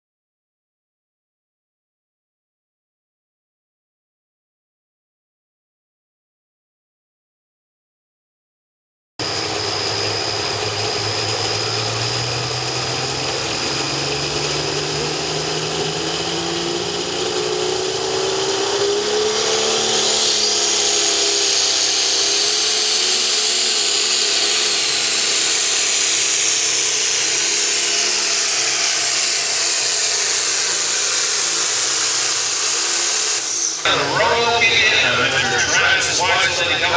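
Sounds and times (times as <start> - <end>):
tractor engine running under load: 9.2 - 36.9.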